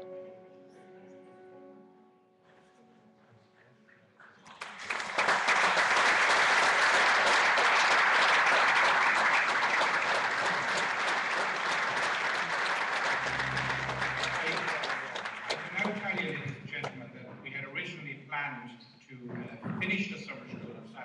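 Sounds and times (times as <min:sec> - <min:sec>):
audience applause: 0:04.4 - 0:16.6.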